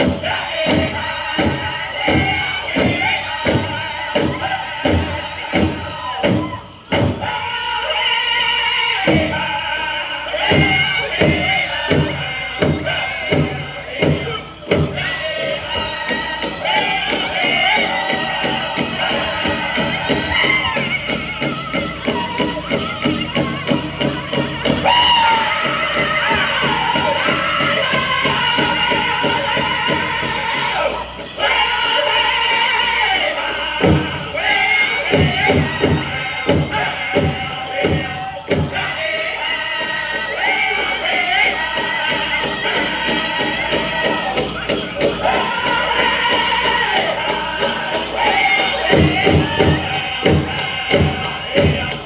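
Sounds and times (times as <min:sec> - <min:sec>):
large drum beaten in unison: 0:00.0 - 0:07.4, 0:41.4 - 0:52.0
drum group singing: 0:00.0 - 0:52.0.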